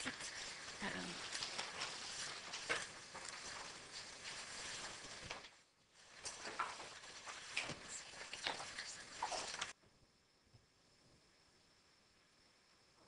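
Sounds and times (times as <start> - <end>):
paper crinkles and knocks: 0.0 - 9.7
paper pages rustling and turning: 0.0 - 9.8.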